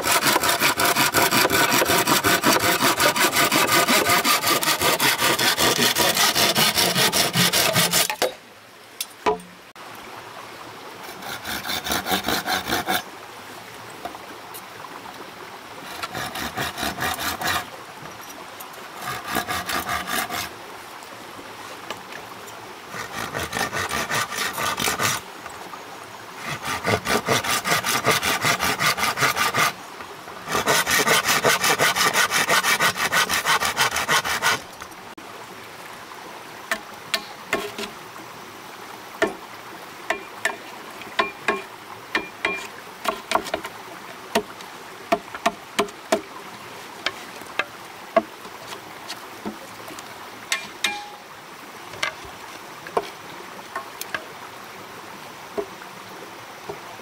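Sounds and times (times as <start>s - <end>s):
hand saw cutting wood: 0.0s - 8.3s, 11.0s - 13.0s, 15.9s - 17.7s, 19.0s - 20.5s, 22.9s - 25.2s, 26.4s - 29.8s, 30.5s - 34.6s, 36.7s - 37.9s, 42.2s - 43.7s.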